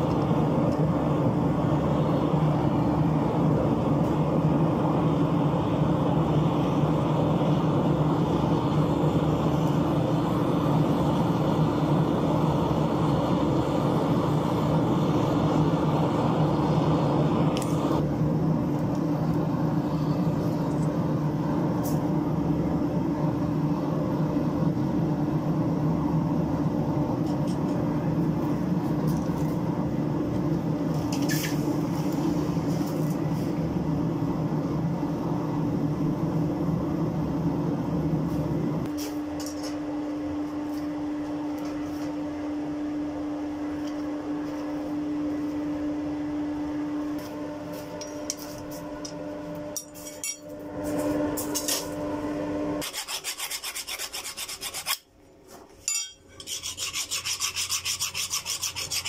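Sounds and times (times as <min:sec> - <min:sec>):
steady hum: 0:00.0 - 0:59.0.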